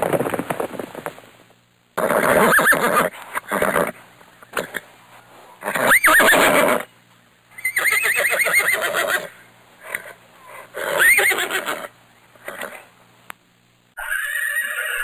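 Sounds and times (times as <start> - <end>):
horse neighing: 2.0 - 4.8, 5.6 - 6.9, 7.6 - 12.8, 14.0 - 15.0.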